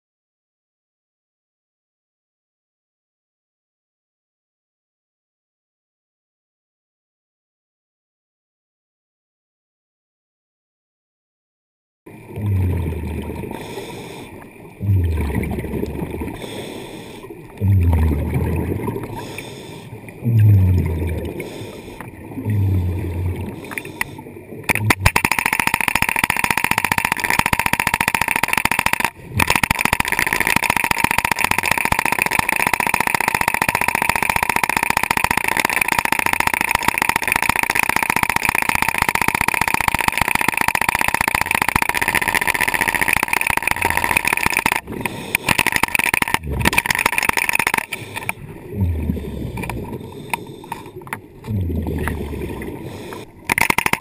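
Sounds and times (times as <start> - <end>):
low gurgling swells: 12.2 - 13.8, 14.8 - 16.6, 17.5 - 19.3, 20.1 - 23.8, 46.3 - 47.1, 48.4 - 50.7, 51.3 - 53.1
hydraulic breaker hammering underwater: 24.7 - 52.2.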